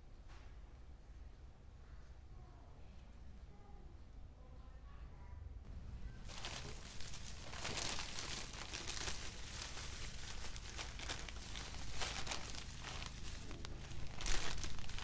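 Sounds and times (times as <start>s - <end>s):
plastic bags crinkling: 6.2s - 15.0s.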